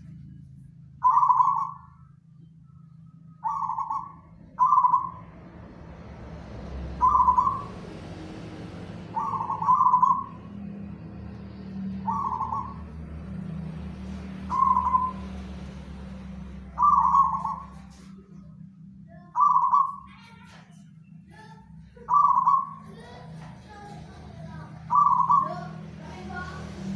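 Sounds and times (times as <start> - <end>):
steady low hum: 0.0 - 26.9
dove cooing: 1.0 - 2.0, 3.4 - 5.4, 6.8 - 11.2, 11.8 - 13.4, 14.2 - 15.4, 16.0 - 18.6, 19.2 - 20.5, 21.3 - 26.6.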